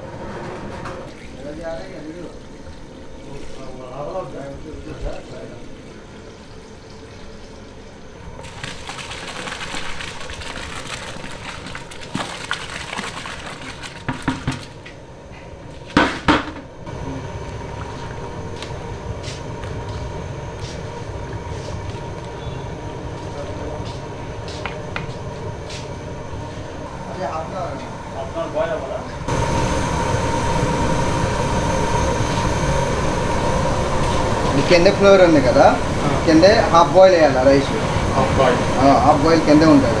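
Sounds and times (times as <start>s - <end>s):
rice boiling in a pot: 1.0s - 40.0s.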